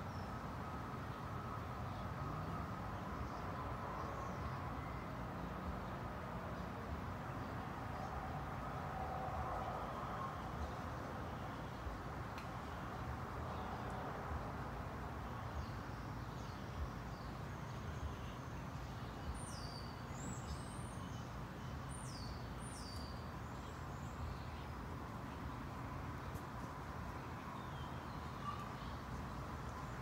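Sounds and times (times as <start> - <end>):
outdoor background noise: 0.0 - 30.0.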